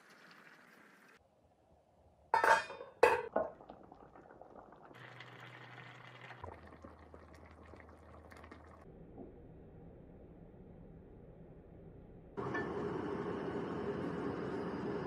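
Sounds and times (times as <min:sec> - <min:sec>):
liquid simmering and bubbling in pot: 0:00.0 - 0:01.2, 0:02.4 - 0:09.4
faint crackles: 0:03.5 - 0:08.8.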